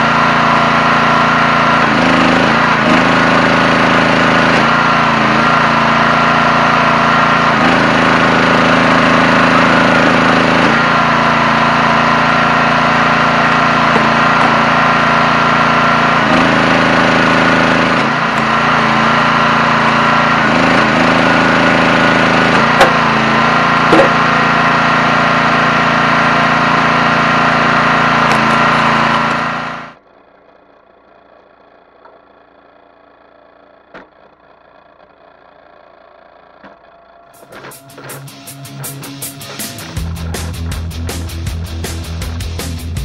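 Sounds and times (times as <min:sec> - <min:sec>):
log splitter engine and pump: 0:00.0 - 0:43.0.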